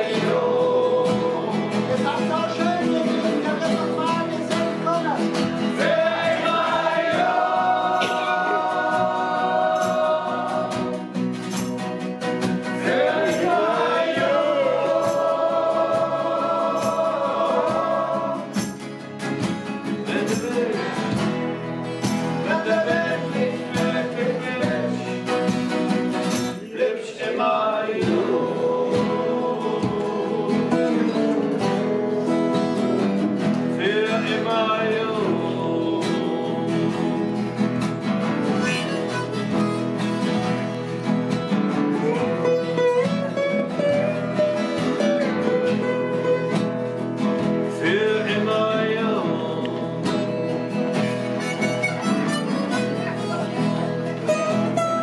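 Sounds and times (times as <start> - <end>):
person singing: 0.0 - 4.8, 20.0 - 21.4, 22.2 - 25.2, 26.7 - 32.8, 33.8 - 37.6, 38.4 - 39.8, 47.7 - 53.2
acoustic guitars strummed: 0.0 - 55.0
harmonica: 38.4 - 40.6, 50.8 - 55.0.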